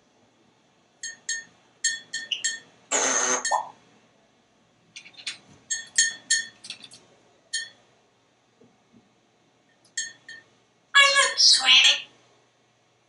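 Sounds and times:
parrot chirping: 0:01.9 - 0:03.8.

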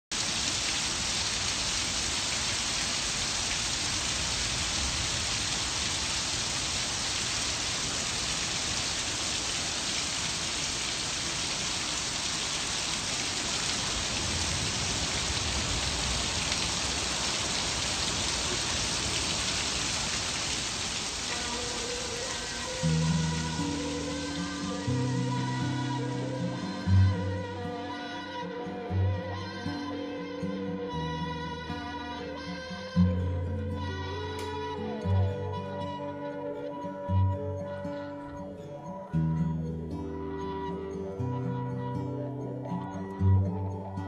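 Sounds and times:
water streaming off roof: 0:00.1 - 0:27.0
heavy rain pouring: 0:00.1 - 0:27.4.

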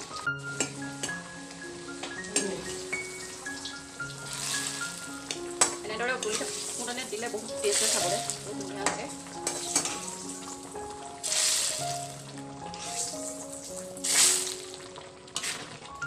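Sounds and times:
dal sizzling in hot oil: 0:00.0 - 0:16.0
soft music with mallet notes: 0:00.0 - 0:16.0
metal ladle clinking: 0:07.7 - 0:10.2.

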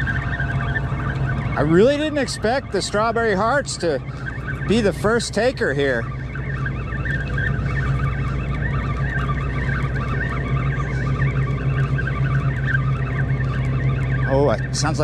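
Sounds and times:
fishing reel squeaky grinding: 0:00.0 - 0:15.0
steady low hum: 0:00.0 - 0:15.0.

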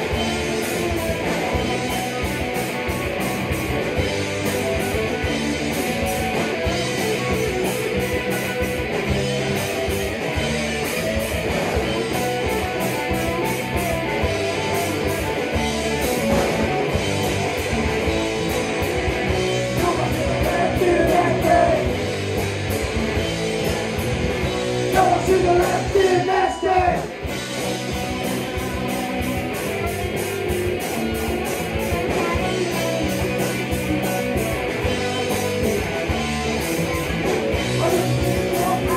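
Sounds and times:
rock band playing: 0:00.0 - 0:38.9
person singing: 0:19.8 - 0:21.9, 0:37.8 - 0:38.9.

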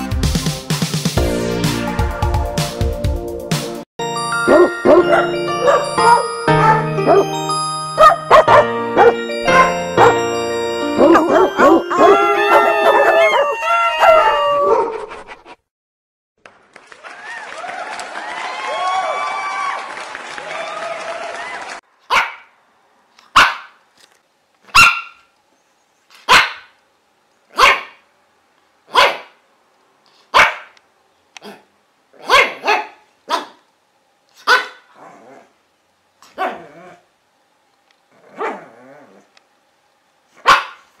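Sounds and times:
dog barking: 0:04.5 - 0:07.3, 0:08.0 - 0:10.2, 0:11.0 - 0:12.2, 0:22.1 - 0:22.5, 0:23.3 - 0:23.8, 0:24.7 - 0:25.2, 0:26.3 - 0:26.8, 0:27.5 - 0:28.0, 0:28.9 - 0:29.4, 0:30.3 - 0:30.8, 0:31.4 - 0:33.6, 0:34.4 - 0:34.9, 0:36.4 - 0:36.7, 0:38.4 - 0:38.6, 0:40.4 - 0:40.9.

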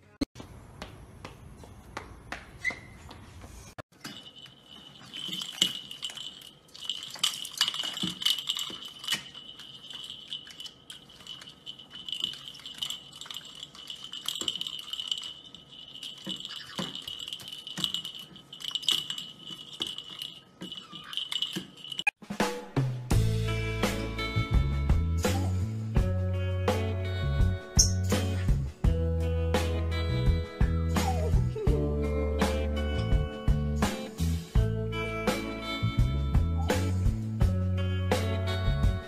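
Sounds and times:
plastic ball toy rattling: 0:04.0 - 0:22.1.

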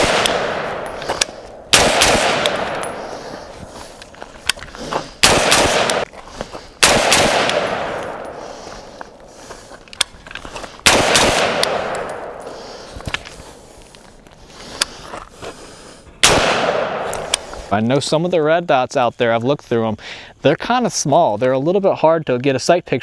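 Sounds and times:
rifle shots with echo: 0:00.0 - 0:03.5, 0:05.2 - 0:06.1, 0:06.8 - 0:08.7, 0:10.8 - 0:12.8, 0:16.2 - 0:17.6.

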